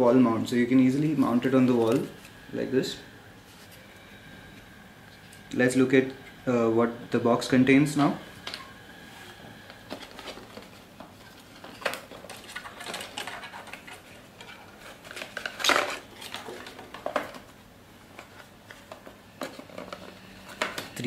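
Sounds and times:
cardboard packaging being handled: 9.3 - 20.7.

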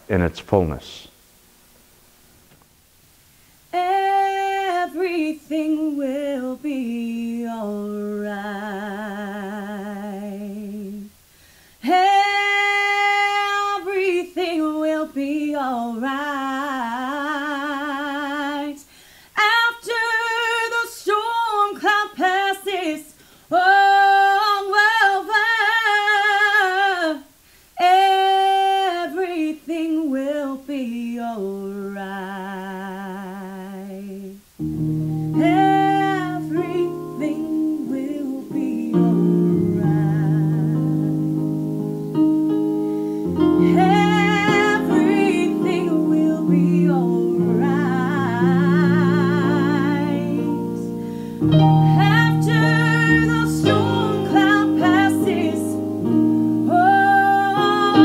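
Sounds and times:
woman singing: 3.7 - 11.1, 11.8 - 34.5, 35.3 - 41.6, 43.3 - 58.0.

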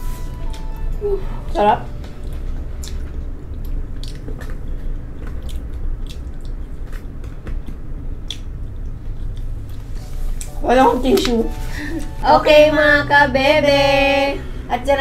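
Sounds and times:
steady low hum: 0.0 - 15.0
person chewing food: 1.9 - 10.6
mouth clicks and smacks: 4.0 - 9.5.

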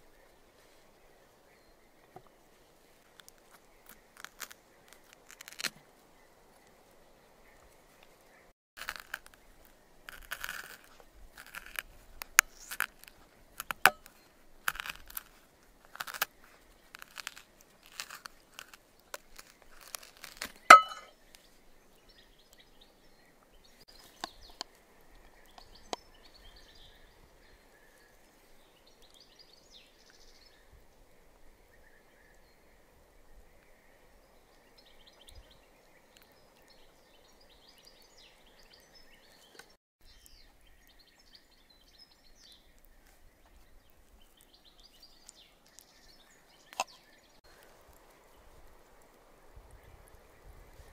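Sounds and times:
metal spoon scraping peach: 17.0 - 21.1.

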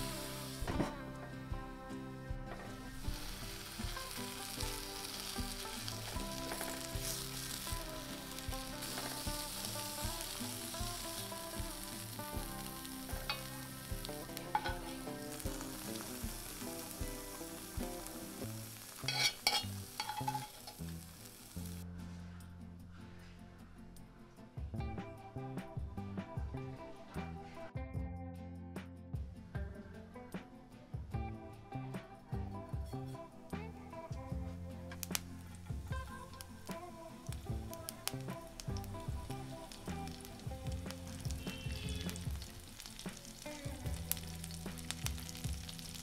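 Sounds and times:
food sizzling in oil: 0.0 - 0.8, 2.6 - 21.8, 35.0 - 46.0
spatula scraping and tapping pan: 13.1 - 17.2, 18.9 - 21.0.

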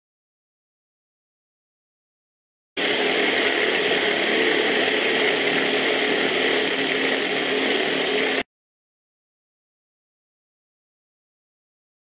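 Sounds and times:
food chopper motor whir: 2.8 - 8.4.

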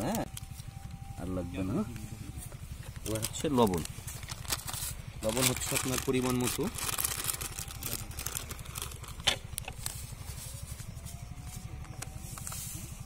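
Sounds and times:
steady low rumble: 0.0 - 13.0
plastic packet crinkling: 3.0 - 9.9.

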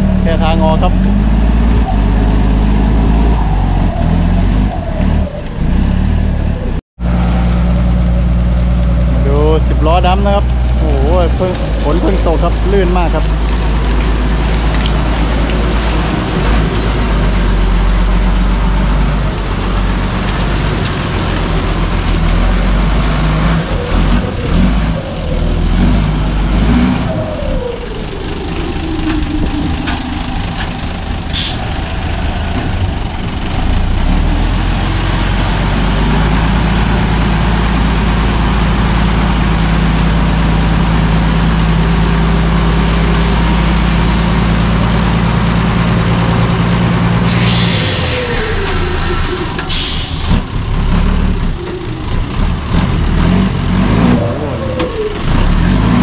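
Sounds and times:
truck engine labouring: 0.0 - 56.0
air brake hisses: 31.4 - 31.6, 47.3 - 50.3.

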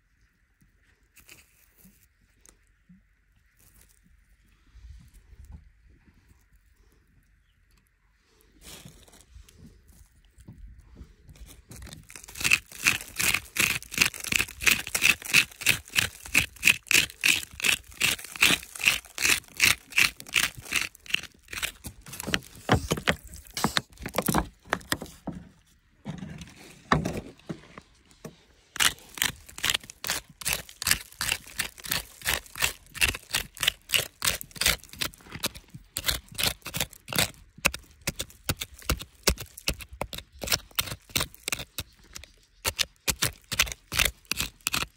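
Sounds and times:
metal tool chipping hard soil: 11.8 - 25.2, 28.8 - 44.9.

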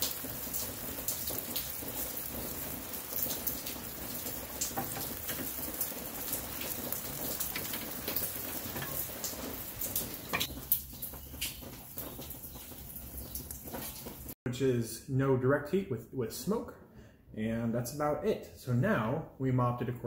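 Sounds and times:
fat sizzling on a grill: 0.0 - 14.3.

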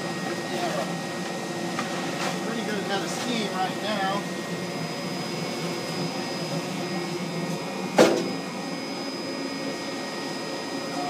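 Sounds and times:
boiler whooshing hum: 0.0 - 11.0.

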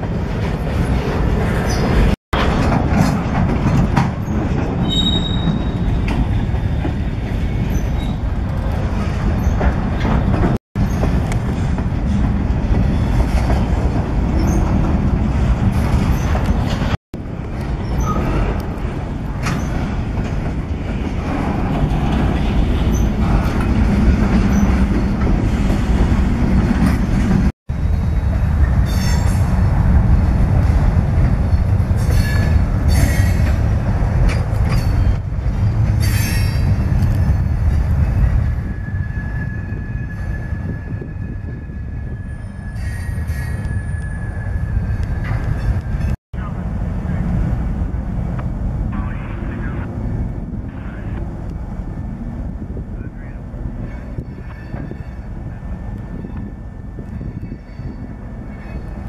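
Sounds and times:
steel wheels rumbling on rails: 0.0 - 59.0
high-pitched wheel squeals: 4.8 - 6.0, 38.6 - 45.7, 53.8 - 59.0.

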